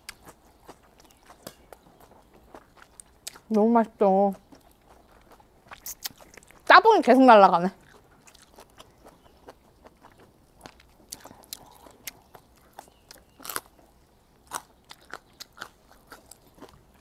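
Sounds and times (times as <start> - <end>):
chewing food: 0.0 - 17.0
wet mouth clicks: 5.7 - 6.6
small crunches: 7.8 - 17.0.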